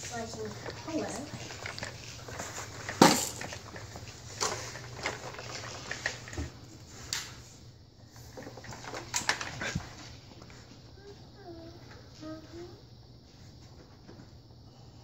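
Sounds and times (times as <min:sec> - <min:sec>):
plastic toys knocking and clacking: 0:00.3 - 0:06.4.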